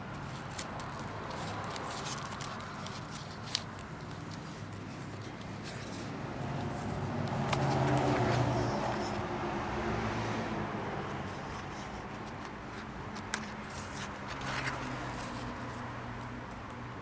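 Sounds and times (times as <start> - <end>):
vehicle passing: 5.8 - 12.3.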